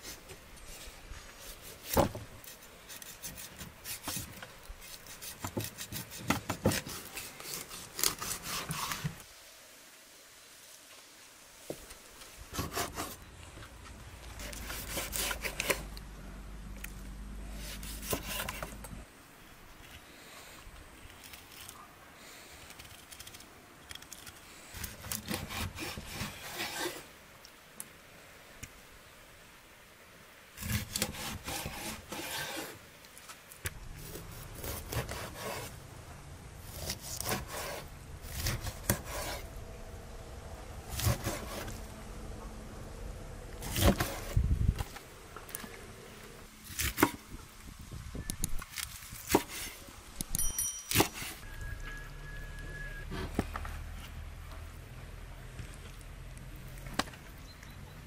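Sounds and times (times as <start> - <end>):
knife sawing through fish: 2.9 - 9.1, 14.4 - 15.8, 24.8 - 27.0, 30.6 - 32.8, 34.1 - 35.8, 36.7 - 39.5, 40.9 - 41.8.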